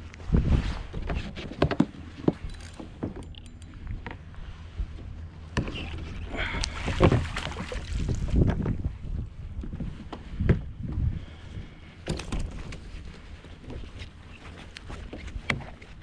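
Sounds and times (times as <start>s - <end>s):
wind rumble on microphone: 0.0s - 2.6s, 3.7s - 16.0s
water splashing: 5.7s - 8.4s.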